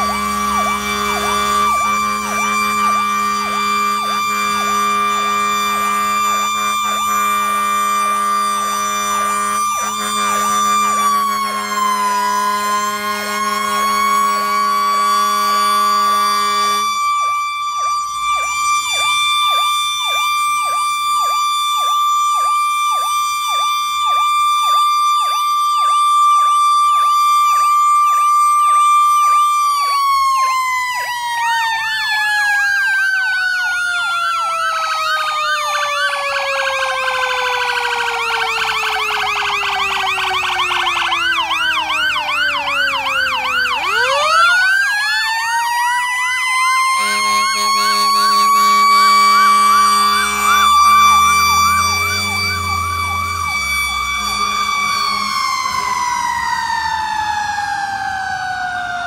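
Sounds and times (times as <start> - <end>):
electronic siren warbling: 0.0 - 59.0
mechanical siren: 0.0 - 59.0.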